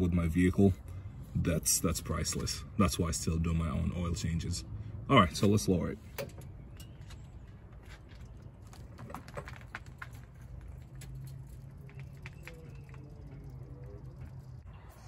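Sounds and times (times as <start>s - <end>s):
steady low hum: 10.2s - 15.0s.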